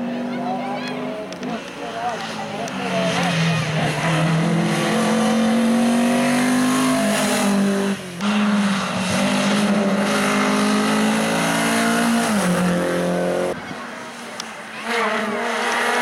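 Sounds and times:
rally car engine at high revs: 0.0 - 16.0.

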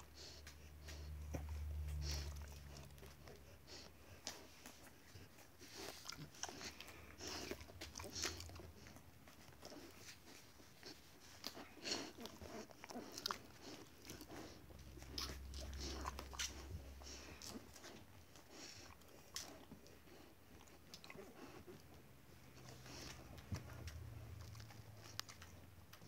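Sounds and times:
dog chewing crunchy food: 0.1 - 26.0.

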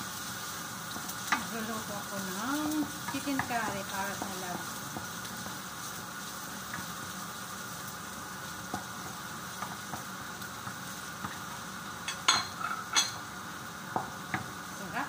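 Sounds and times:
onion sizzling in oil: 0.0 - 15.0
wooden spatula stirring: 2.8 - 5.8.

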